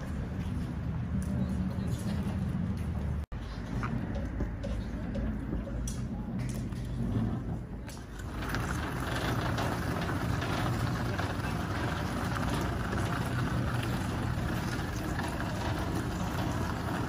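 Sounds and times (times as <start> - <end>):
robotic vehicle driving: 6.3 - 17.0.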